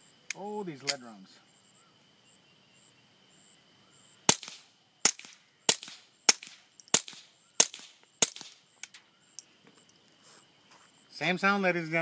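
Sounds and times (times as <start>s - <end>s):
suppressed pistol shots: 4.3s - 8.6s.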